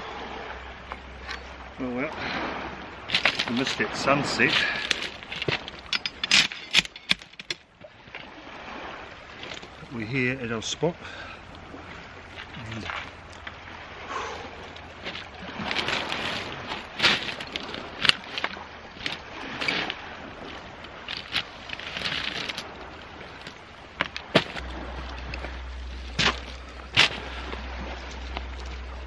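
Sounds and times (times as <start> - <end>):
gear knocking and clattering on stones: 4.5 - 7.6
boots crunching over pebbles: 14.7 - 29.0.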